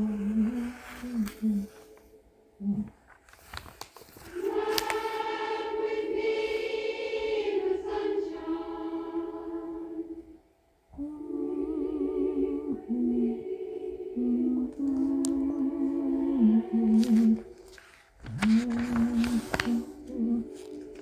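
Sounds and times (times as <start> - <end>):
choir-like singing held notes: 4.2 - 21.0.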